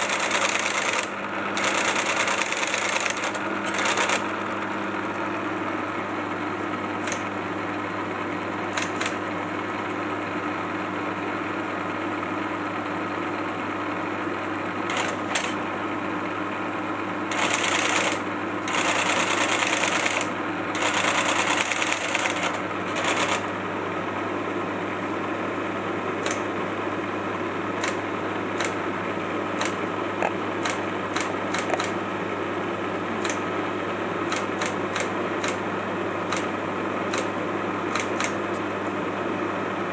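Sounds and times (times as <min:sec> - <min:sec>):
typewriter terminal chattering: 0:00.0 - 0:04.4, 0:08.7 - 0:09.2, 0:14.9 - 0:15.6, 0:17.3 - 0:23.5, 0:27.8 - 0:28.0, 0:29.6 - 0:32.0, 0:37.9 - 0:38.4
computer humming: 0:00.0 - 0:10.8, 0:13.3 - 0:39.9
sharp clicks: 0:29.6 - 0:32.0.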